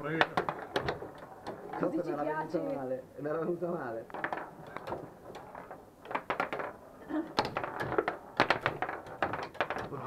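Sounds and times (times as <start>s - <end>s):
table football clacks and knocks: 0.0s - 10.0s.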